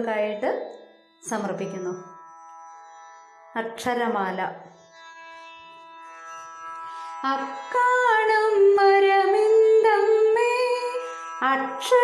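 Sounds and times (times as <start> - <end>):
woman singing: 7.2 - 12.0.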